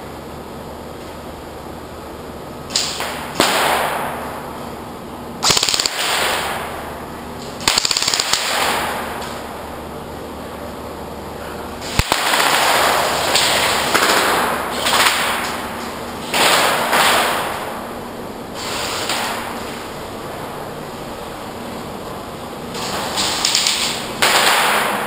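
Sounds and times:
airsoft gunfire bursts: 2.7s - 4.0s, 5.4s - 6.7s, 7.6s - 9.2s, 11.8s - 15.4s, 16.3s - 17.7s, 23.4s - 25.0s
sharp crack: 2.7s - 4.4s, 5.4s - 9.5s, 11.8s - 17.9s, 18.6s - 19.8s, 22.7s - 25.0s.

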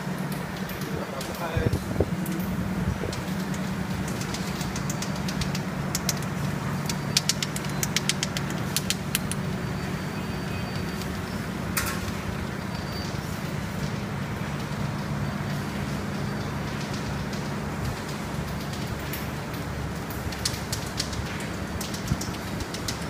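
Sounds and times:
sharp machine clicks: 0.4s - 9.7s.

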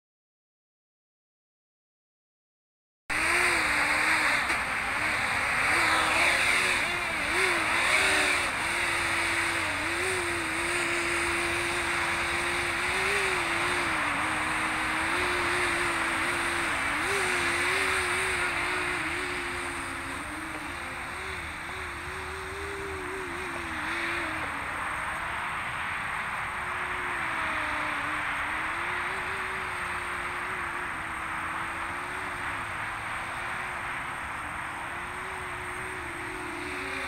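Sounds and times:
quadcopter propellers buzzing: 3.1s - 37.0s.

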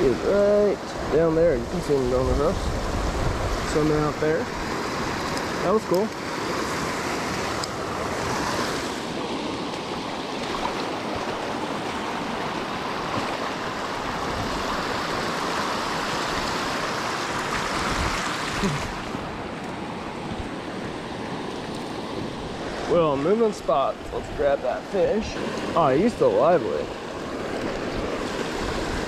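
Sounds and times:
river water rushing over rocks: 0.0s - 29.0s.

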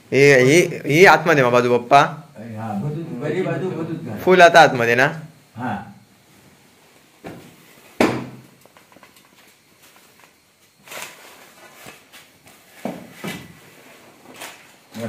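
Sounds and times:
sharp knock: 8.0s - 8.4s.

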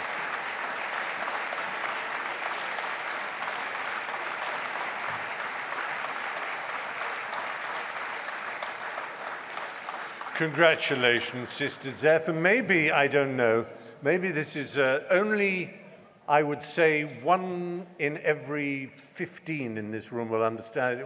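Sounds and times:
large audience applauding: 0.0s - 12.2s.

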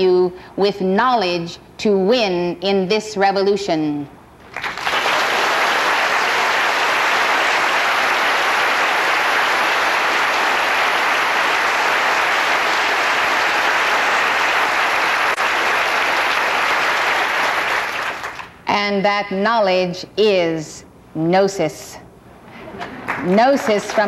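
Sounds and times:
audience applauding: 4.4s - 18.6s, 22.8s - 24.0s.

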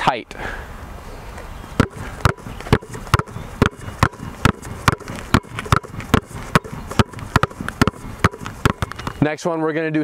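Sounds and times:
basketballs dribbling on asphalt: 1.8s - 9.2s.

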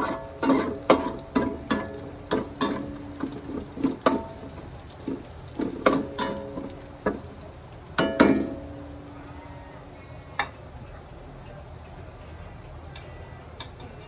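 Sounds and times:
metal spatula scraping a wok: 0.0s - 4.4s
garlic frying in oil: 0.0s - 14.0s.

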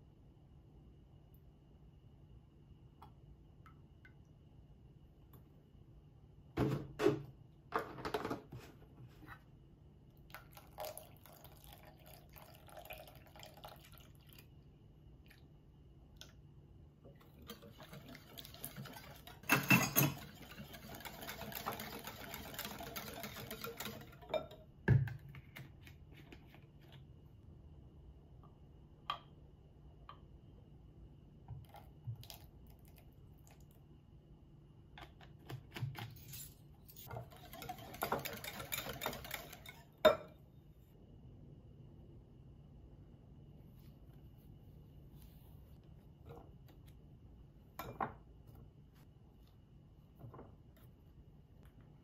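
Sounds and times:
milk pouring: 10.2s - 14.6s.

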